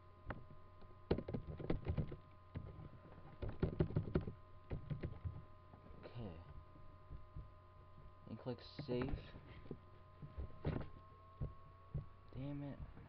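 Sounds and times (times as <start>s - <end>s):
computer keyboard typing: 1.1s - 2.2s, 3.4s - 5.2s.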